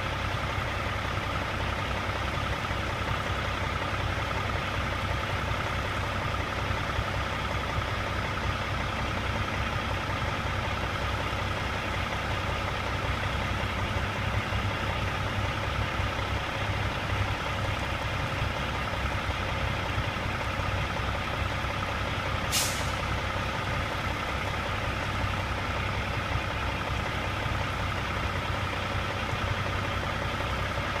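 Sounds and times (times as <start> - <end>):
sharp hiss: 22.5 - 23.0.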